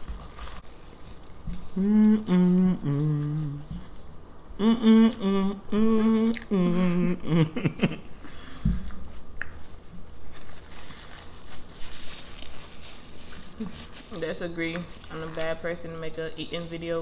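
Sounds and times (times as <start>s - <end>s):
person humming a tune: 1.5s - 7.9s.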